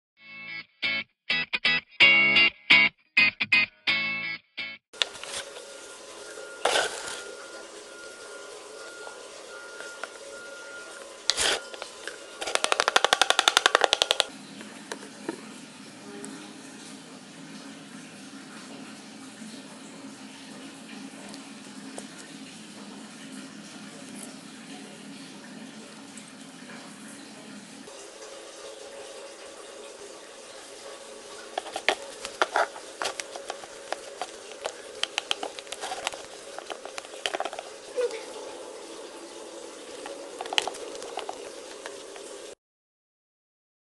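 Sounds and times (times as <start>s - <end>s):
slime stirring sticky clicks: 11.3s - 14.3s, 31.6s - 37.7s, 40.0s - 42.1s
rapid sputtering pops: 12.4s - 14.3s.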